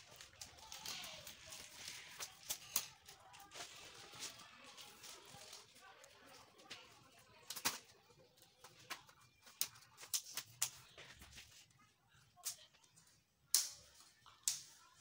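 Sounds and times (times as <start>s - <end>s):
sharp plastic clicks and taps: 14.4s - 14.8s.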